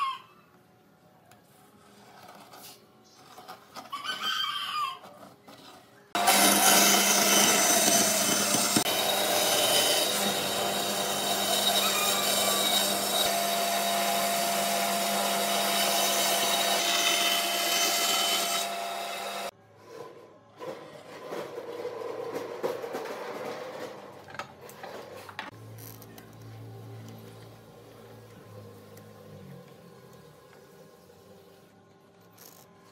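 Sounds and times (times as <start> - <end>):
bandsaw cutting wood: 6.2 - 19.5.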